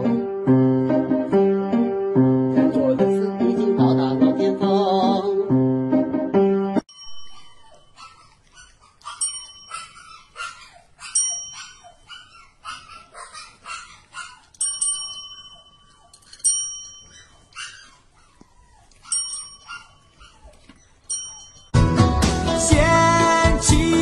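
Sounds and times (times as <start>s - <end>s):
desk call bell dings: 9.2s - 10.0s, 14.6s - 17.2s, 21.1s - 21.8s.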